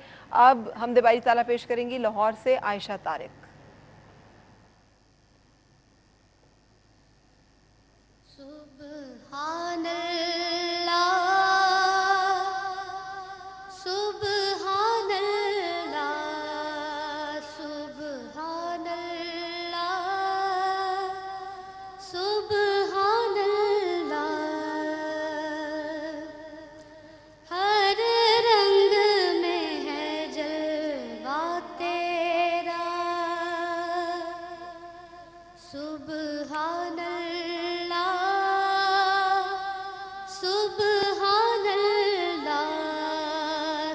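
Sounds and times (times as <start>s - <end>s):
girl singing into microphone: 8.3s - 43.9s.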